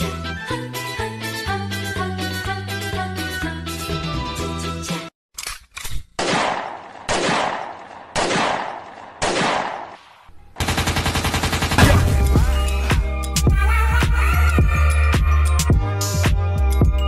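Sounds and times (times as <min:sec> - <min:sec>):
music: 0:00.0 - 0:05.1, 0:11.8 - 0:17.0
loud gunshot-like blasts: 0:06.2 - 0:10.0, 0:11.7 - 0:12.3.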